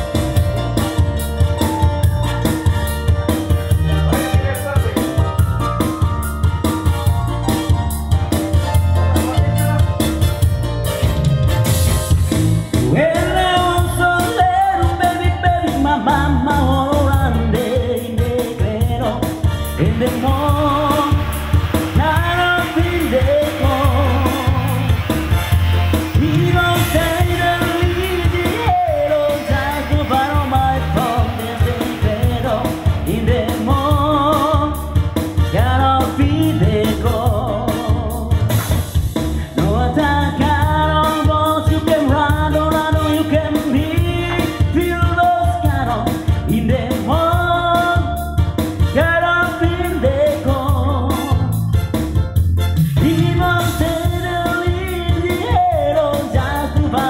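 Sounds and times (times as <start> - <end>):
electronic keyboard with backing beat: 0.0 - 57.0
man singing into a microphone: 12.7 - 38.6, 39.4 - 51.8, 52.9 - 57.0.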